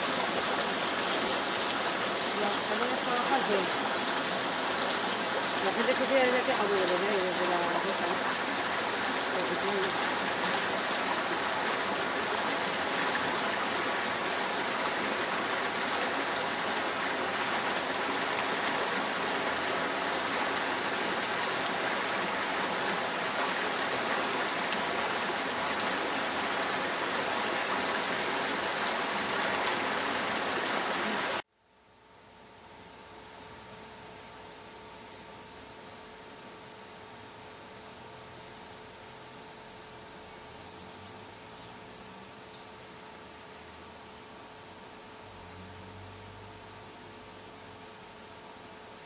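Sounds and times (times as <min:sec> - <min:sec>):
water rushing over weir: 0:00.0 - 0:31.4.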